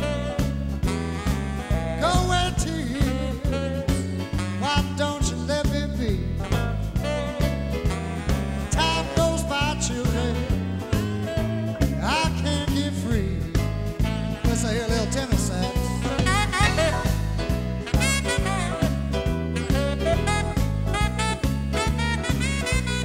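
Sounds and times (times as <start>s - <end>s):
man singing: 0.0s - 0.6s, 1.6s - 17.5s
bass line: 0.0s - 23.0s
keyboard: 0.0s - 23.0s
live band playing swing blues: 0.0s - 23.0s.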